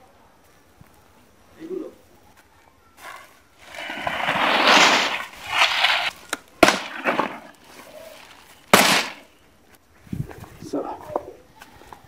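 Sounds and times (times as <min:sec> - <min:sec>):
dry palm fronds rustling: 0:02.9 - 0:11.0.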